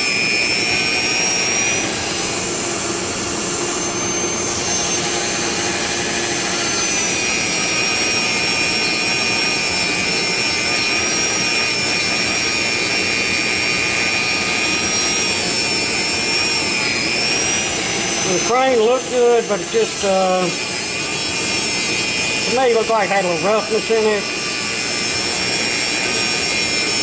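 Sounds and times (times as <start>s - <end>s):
rotary tool whining: 0.0s - 27.0s.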